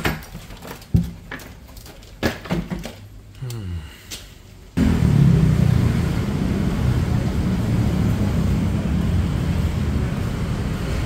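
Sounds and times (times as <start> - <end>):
cars and scooters passing: 4.8 - 11.0.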